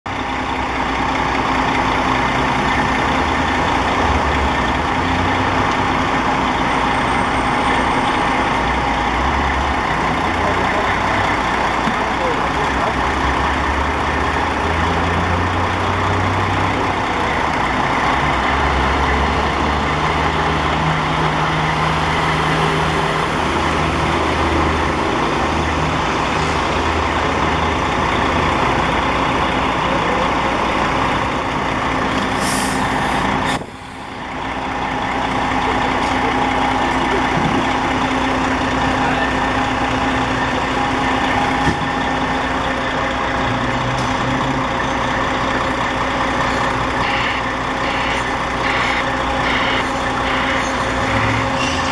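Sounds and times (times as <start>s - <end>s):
diesel engine running: 0.1s - 51.9s
air brake hiss: 32.3s - 34.1s.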